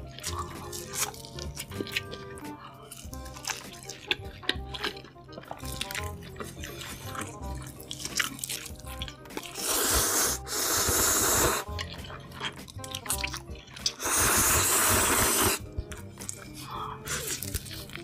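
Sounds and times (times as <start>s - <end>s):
background music: 0.0s - 18.0s
man slurping noodles: 9.5s - 11.8s, 13.9s - 15.7s.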